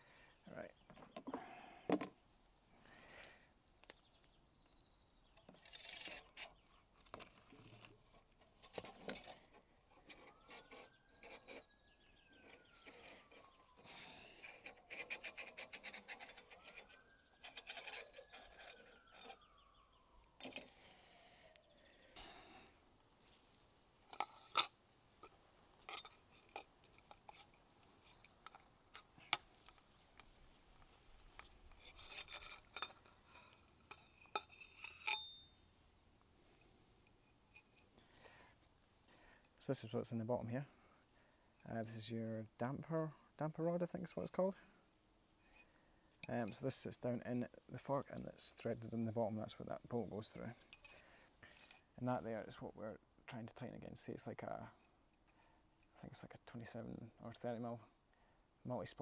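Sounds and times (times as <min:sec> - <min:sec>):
metal parts clinking and knocking: 0:31.3 - 0:35.5.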